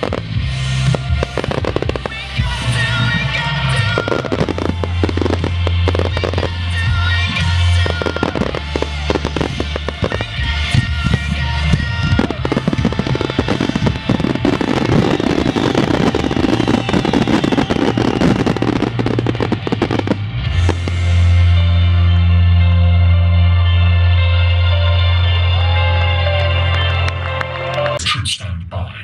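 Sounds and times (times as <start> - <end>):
fireworks crackling: 0.0 - 22.2
music playing: 0.0 - 28.6.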